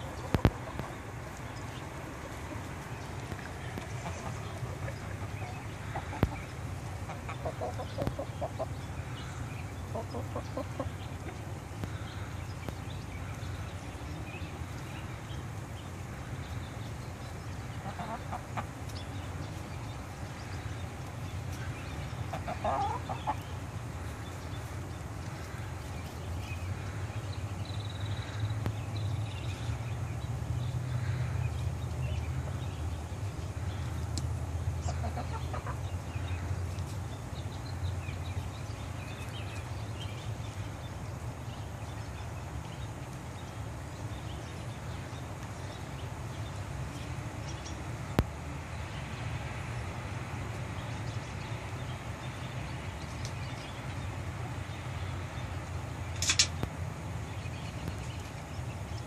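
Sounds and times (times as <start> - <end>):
chickens clucking: 0.0 - 27.2, 31.6 - 37.0
sharp click: 56.1 - 56.7.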